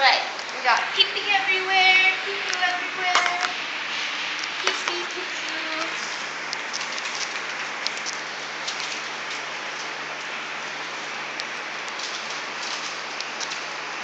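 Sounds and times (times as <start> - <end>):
newspaper rustling under puppies: 4.4 - 14.0.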